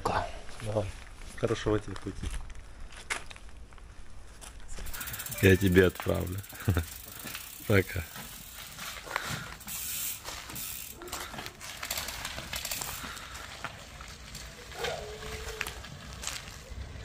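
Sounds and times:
bicycle tyres crunching on gravel: 0.5 - 17.0
bicycle freewheel clicking: 4.8 - 13.6.

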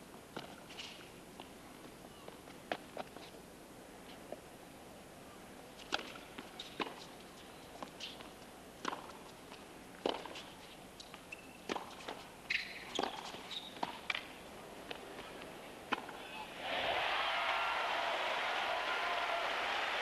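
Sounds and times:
shoes squeaking on court: 6.6 - 8.3, 10.0 - 14.3.

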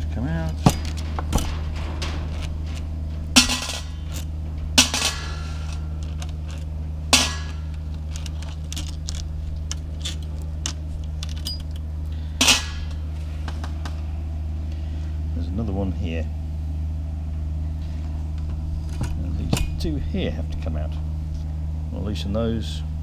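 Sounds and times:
steady low hum: 0.0 - 23.0
metal clatters ringing: 0.2 - 11.8, 12.4 - 13.2
metal parts clanking: 0.2 - 13.6.

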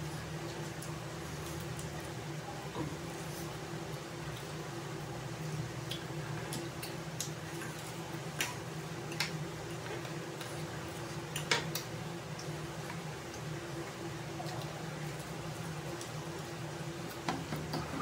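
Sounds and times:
chewing chicken wings: 5.6 - 17.3.

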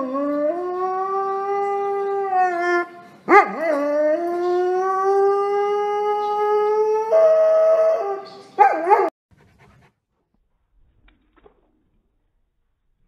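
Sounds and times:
dog howling: 0.0 - 9.1.

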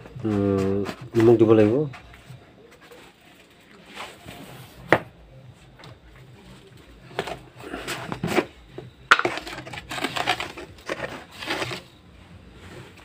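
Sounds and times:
plastic container rustling and knocking: 0.0 - 3.2, 5.8 - 12.0.

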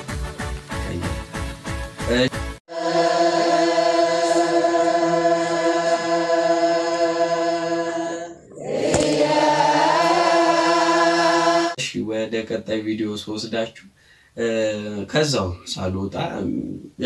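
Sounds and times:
choir chanting held chords: 2.7 - 11.8.

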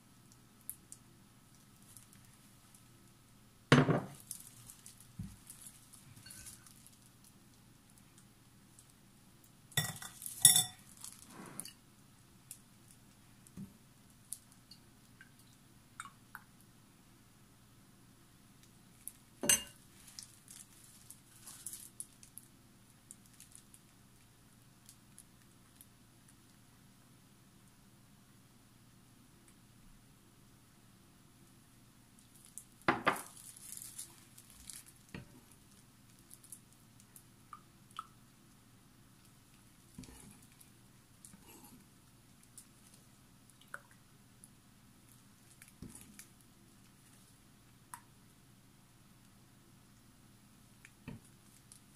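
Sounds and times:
metal strainer clinking on glass bowl: 9.8 - 10.8, 19.4 - 19.8
liquid sloshing and dripping: 43.5 - 44.1.

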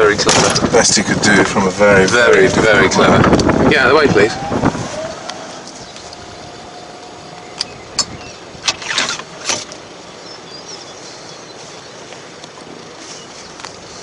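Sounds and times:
golf buggy whine: 1.8 - 10.6.

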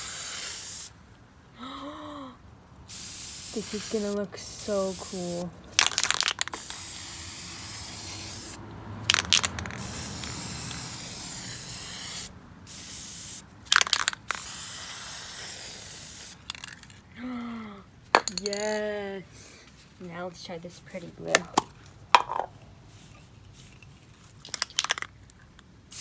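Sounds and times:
spray paint can hissing: 0.0 - 1.0, 2.9 - 17.0.

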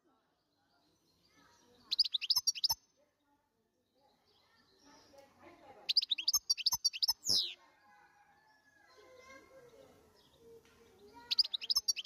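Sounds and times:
goldfinch singing: 1.8 - 2.8, 5.8 - 7.6, 11.1 - 12.0.

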